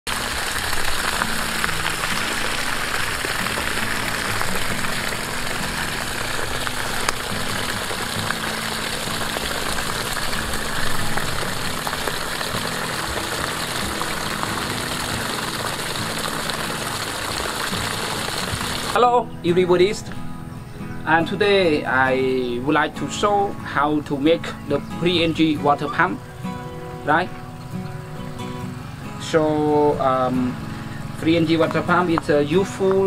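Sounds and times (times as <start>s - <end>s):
water gushing onto grass: 0.1s - 19.1s, 28.8s - 33.0s.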